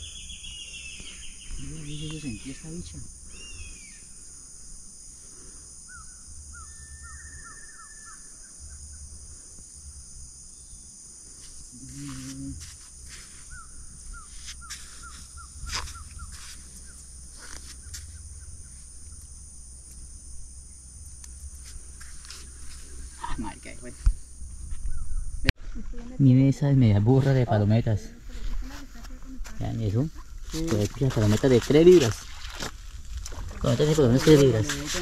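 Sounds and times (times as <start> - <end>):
high-pitched insect drone: 0.0 - 25.5.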